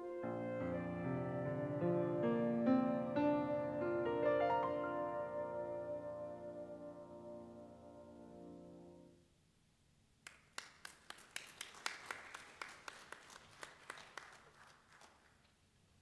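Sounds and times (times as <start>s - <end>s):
saxophone and piano chord: 0.0s - 9.2s
people applauding: 10.2s - 15.6s.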